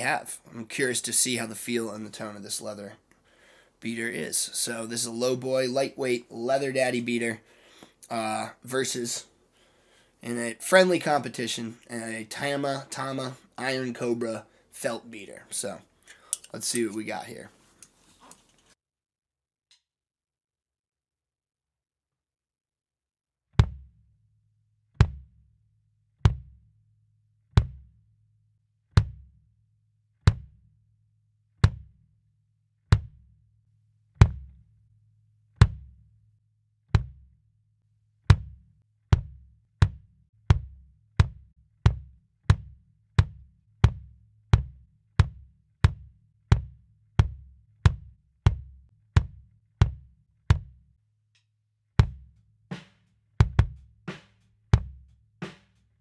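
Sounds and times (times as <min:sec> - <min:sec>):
kick drum strokes: 0:23.6 - 0:24.0, 0:25.0 - 0:25.4, 0:26.2 - 0:26.6, 0:27.5 - 0:28.0, 0:29.0 - 0:29.4, 0:30.3 - 0:30.6, 0:31.6 - 0:32.0, 0:32.9 - 0:33.3, 0:34.2 - 0:34.6, 0:35.6 - 0:36.0, 0:37.0 - 0:37.3, 0:38.3 - 0:50.8, 0:52.0 - 0:55.8.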